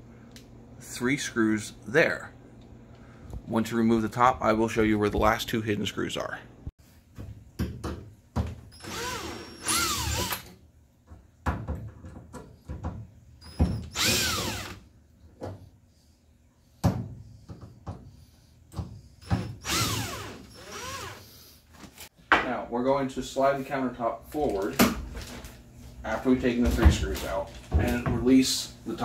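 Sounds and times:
cordless drill motor whine: 8.7s - 10.4s, 13.4s - 14.8s, 19.2s - 21.2s.

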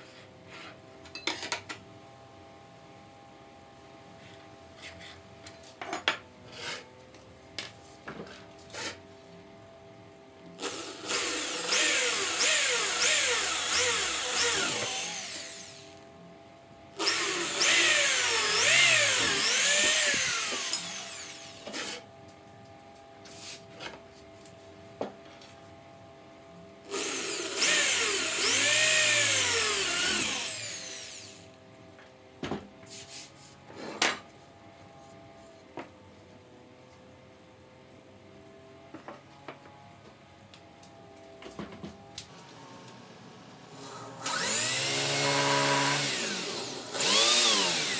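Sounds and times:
electric power tool motor: 10.6s - 16.2s, 17.0s - 22.0s, 26.9s - 31.6s, 42.3s - 47.9s.

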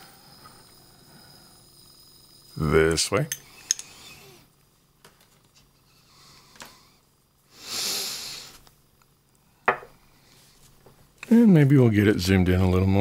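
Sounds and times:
soft hiss of air: 6.0s - 12.0s
glass bottle set down on desk: 9.7s - 9.9s.

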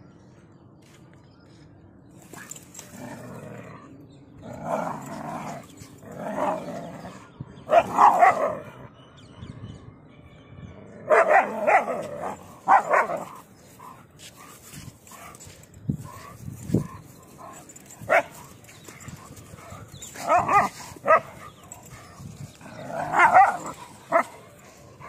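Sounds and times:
dog barking: 7.7s - 8.6s, 11.1s - 13.4s, 17.4s - 18.5s, 20.2s - 21.3s, 23.0s - 24.3s.

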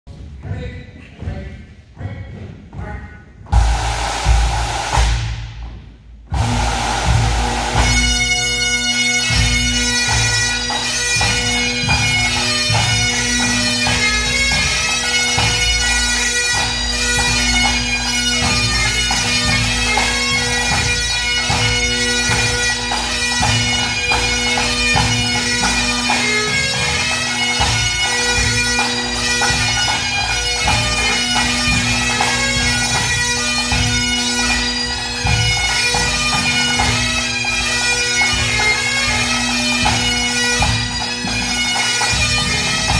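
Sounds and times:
snare drums: 2.8s - 8.5s
bass drum beating: 3.5s - 8.0s
bagpipes playing: 6.3s - 42.9s.

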